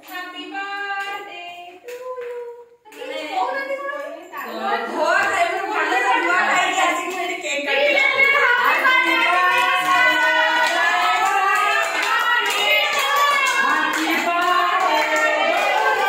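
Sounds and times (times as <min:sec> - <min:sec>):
group singing birthday song: 0:00.0 - 0:16.0
hand-clapping: 0:08.0 - 0:16.0.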